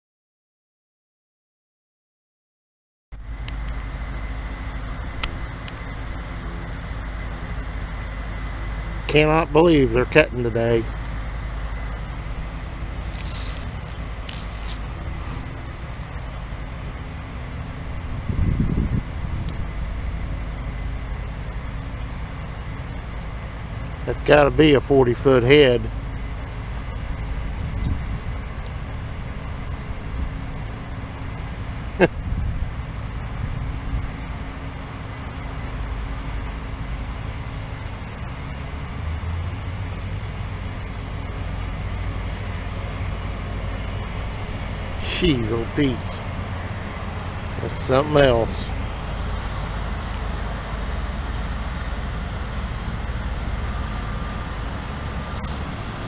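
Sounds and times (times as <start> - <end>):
combine engine drone: 3.2 - 56.0
brief rustles: 13.0 - 15.5.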